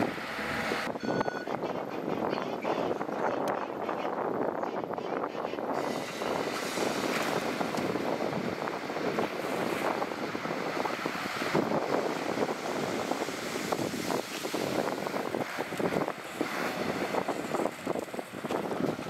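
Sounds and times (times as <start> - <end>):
diesel engine running: 0.0 - 3.2
wind buffeting microphone: 0.0 - 19.0.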